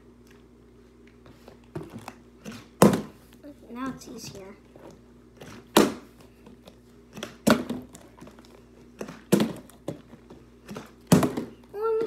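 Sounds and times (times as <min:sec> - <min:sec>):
plastic bottle thudding on wooden floor: 0:02.8 - 0:03.2, 0:11.0 - 0:11.6.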